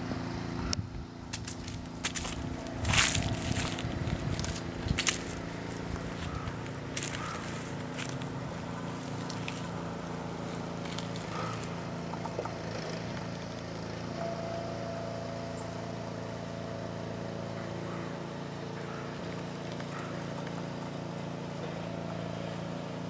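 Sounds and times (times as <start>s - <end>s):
engine humming steadily: 0.0s - 23.0s
high steady tone: 14.0s - 18.4s.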